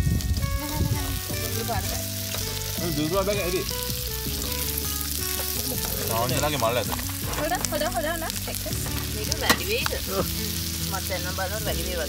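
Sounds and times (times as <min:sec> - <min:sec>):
background music: 0:00.0 - 0:12.0
sausages sizzling in frying pan: 0:00.0 - 0:12.0.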